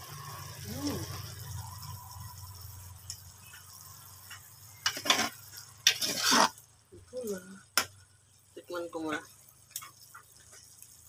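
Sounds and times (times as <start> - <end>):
metal ladle scraping metal pot: 4.8 - 6.6.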